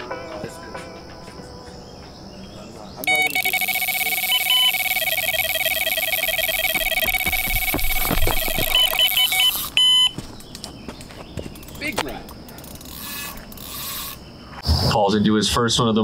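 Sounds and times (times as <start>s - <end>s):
rapid high electronic beeping: 3.0s - 10.2s.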